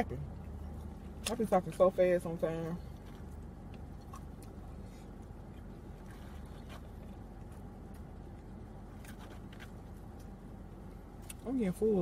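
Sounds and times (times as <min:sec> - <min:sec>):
low rumble in car cabin: 0:00.0 - 0:12.0.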